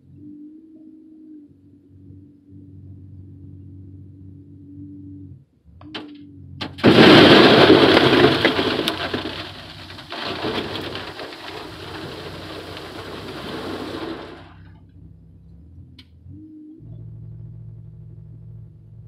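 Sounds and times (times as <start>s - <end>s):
crushed stone pouring into truck bed: 6.6s - 14.6s.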